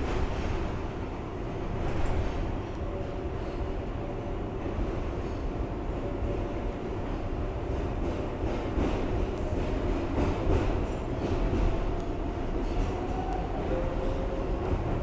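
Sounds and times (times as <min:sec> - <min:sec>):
steel wheels rumbling on rail: 0:00.0 - 0:15.0.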